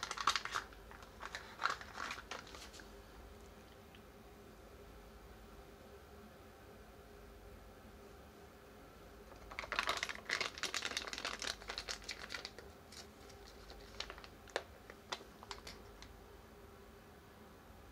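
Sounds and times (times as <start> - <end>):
plastic pouch crinkling: 0.0 - 2.8, 9.3 - 16.1.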